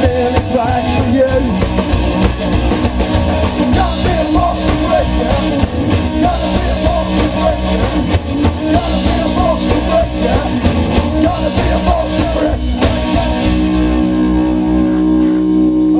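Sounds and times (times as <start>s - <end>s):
man singing: 0.0s - 1.7s, 3.6s - 13.9s
punk rock band playing: 0.0s - 15.9s.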